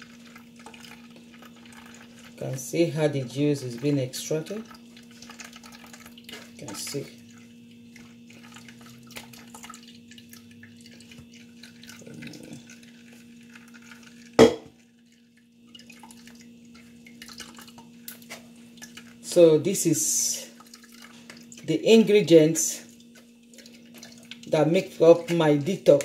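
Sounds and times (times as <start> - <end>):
juice dripping into bowl: 0.0 - 26.0
sharp knock: 14.4 - 14.7.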